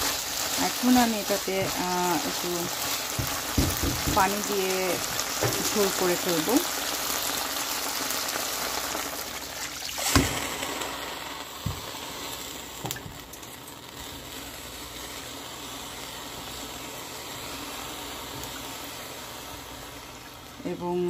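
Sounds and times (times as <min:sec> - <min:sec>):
water splashing into hot pan: 0:00.0 - 0:14.2, 0:16.3 - 0:20.6
food sizzling in frying pan: 0:00.0 - 0:21.0
spatula knocking on pan: 0:03.1 - 0:04.5.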